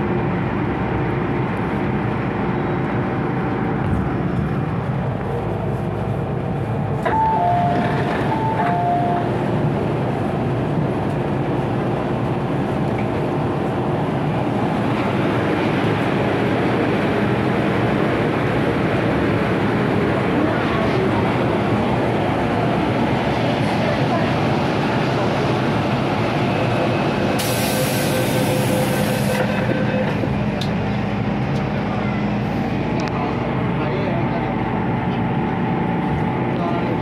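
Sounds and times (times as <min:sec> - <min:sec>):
train motor and wheels rumbling: 0:00.0 - 0:37.0.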